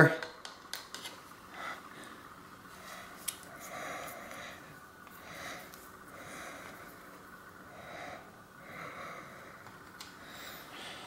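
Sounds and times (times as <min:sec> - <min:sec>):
person breathing through nose: 0:07.6 - 0:09.6, 0:10.2 - 0:11.0.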